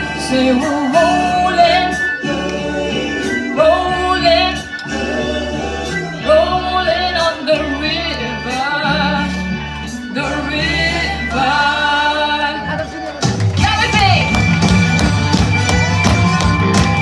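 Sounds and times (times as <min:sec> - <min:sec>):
person singing lead vocals: 0:00.0 - 0:12.9
steady bass line: 0:00.0 - 0:17.0.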